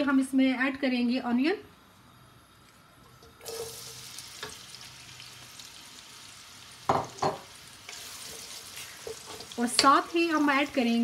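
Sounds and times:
onions sizzling in hot oil: 2.4 - 11.0.

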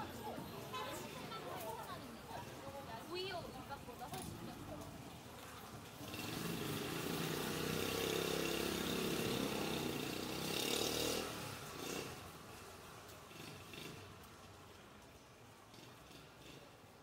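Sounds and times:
motor vehicle passing by: 5.9 - 14.7.

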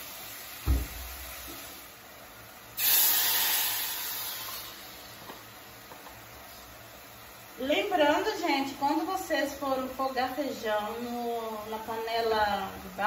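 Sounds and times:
beans sizzling in hot oil: 0.0 - 13.0
thump: 0.6 - 1.1.

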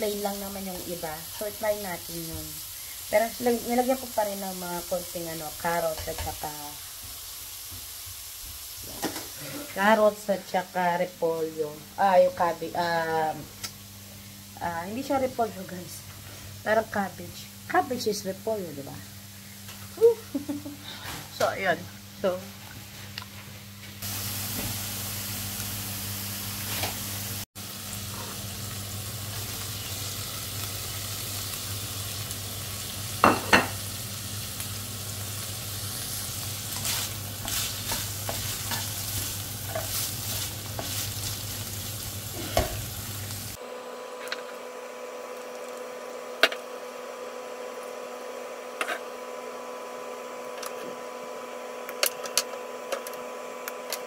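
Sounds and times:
meat sizzling in a frying pan: 0.0 - 10.2, 24.0 - 43.6
spatula scraping a pan: 36.7 - 41.4.

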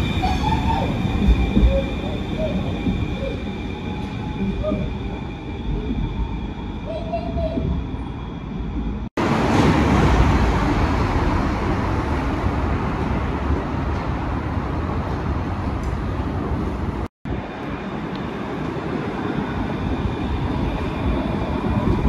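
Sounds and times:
tram wheel squeal: 0.0 - 9.0
street noise: 0.0 - 22.0
tram rumble and whine: 0.0 - 22.0.

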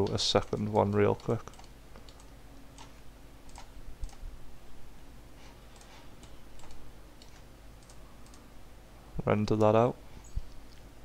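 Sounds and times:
keyboard and mouse clicks: 0.0 - 4.2, 5.7 - 8.4.

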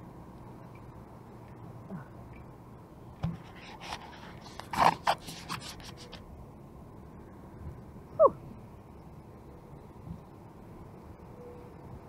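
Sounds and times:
rubbing and scraping noises: 3.2 - 6.2.

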